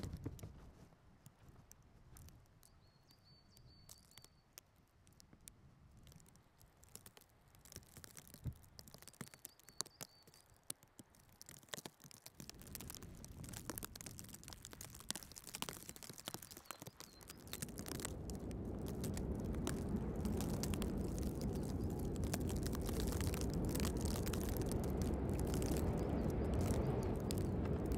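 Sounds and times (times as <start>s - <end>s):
low wind rumble on microphone: 12.4s - 27.9s.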